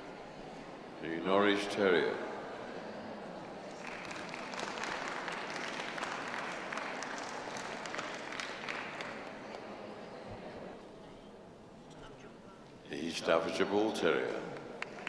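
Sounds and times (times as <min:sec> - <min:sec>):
audience clapping: 0:03.6 - 0:09.6, 0:14.5 - 0:15.0.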